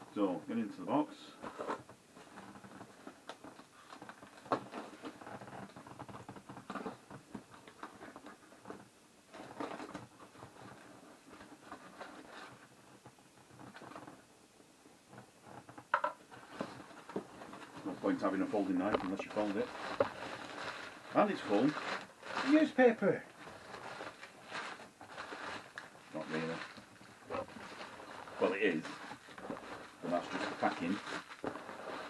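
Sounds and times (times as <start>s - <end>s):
cardboard scraping and rustling: 1.4s - 14.2s, 16.3s - 32.0s.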